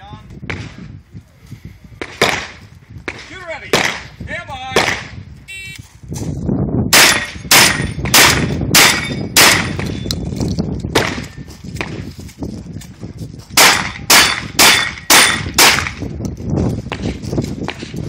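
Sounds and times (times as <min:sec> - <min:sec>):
shotgun shots: 0:02.0 - 0:05.2, 0:06.9 - 0:10.0, 0:10.9 - 0:11.4, 0:13.6 - 0:16.0.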